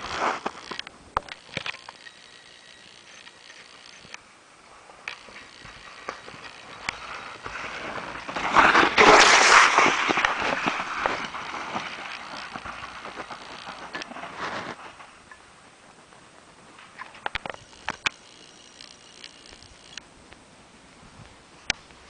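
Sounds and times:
bike tyres crunching through snow: 0.0 - 0.8, 1.4 - 15.3
bike clicks and rattles: 0.0 - 4.2, 5.0 - 15.4, 16.8 - 20.0.

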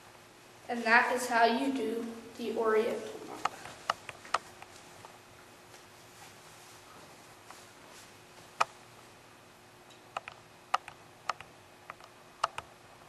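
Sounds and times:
faint room hiss: 0.0 - 13.0.

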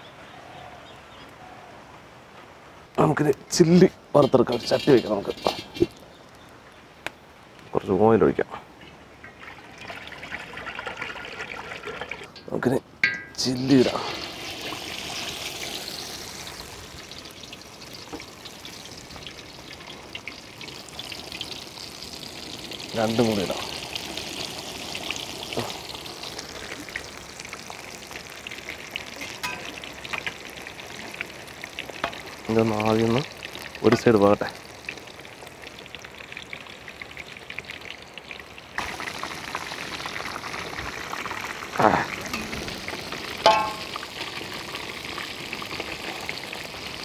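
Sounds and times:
hot oil sizzling in wok: 4.2 - 6.2, 11.6 - 47.0.

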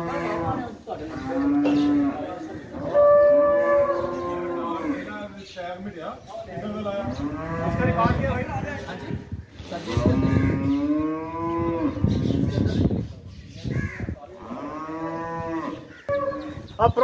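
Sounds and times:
cows mooing: 0.0 - 5.2, 7.0 - 8.2, 10.0 - 12.6, 14.4 - 16.6.

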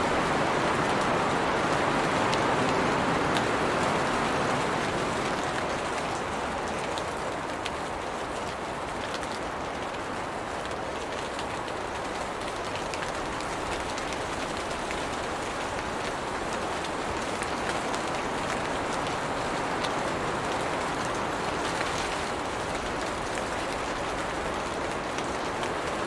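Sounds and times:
rain falling on leaves: 0.0 - 26.0.

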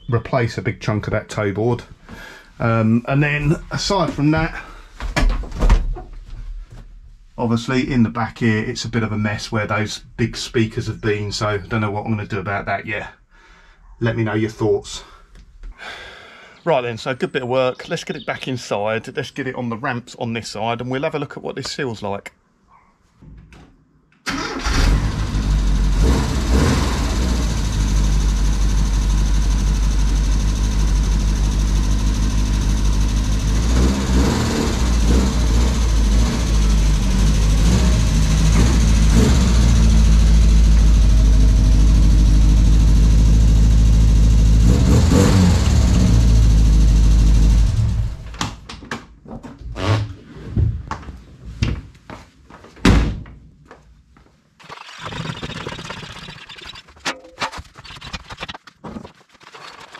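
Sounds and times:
car engine running: 25.0 - 48.3.

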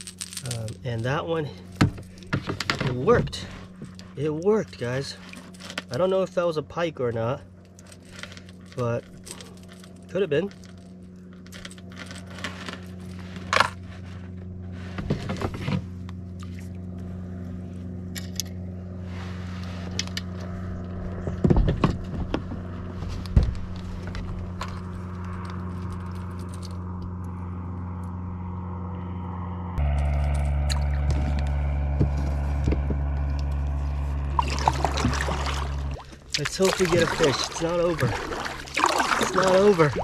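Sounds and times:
fishing tackle clicks and scrapes: 0.0 - 6.1, 7.6 - 14.3, 23.6 - 27.4
boat motor humming: 0.0 - 40.0.

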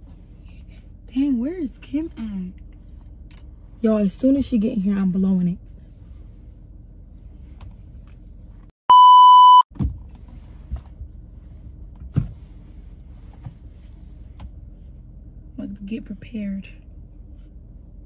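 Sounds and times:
electronic censor bleep: 8.9 - 9.7.

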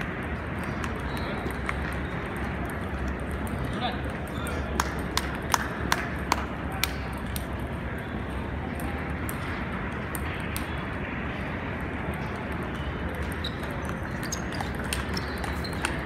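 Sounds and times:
ping-pong ball clicks: 12.0 - 16.0.

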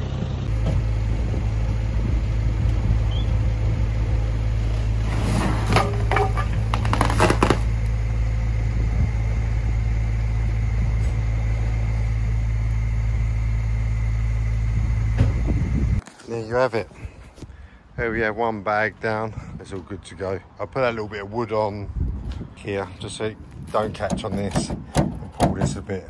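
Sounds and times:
diesel engine droning: 0.0 - 17.8
heavy bag dragged scraping: 4.9 - 7.7.

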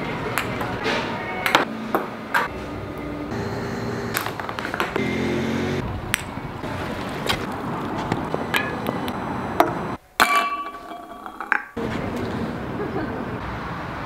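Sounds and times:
background noise: 0.0 - 14.0
ball clinking on glass: 10.2 - 11.8.

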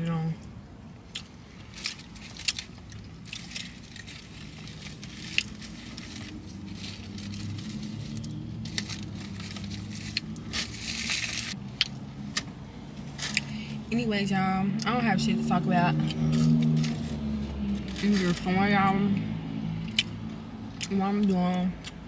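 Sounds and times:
takeout container crackling: 1.6 - 11.6.

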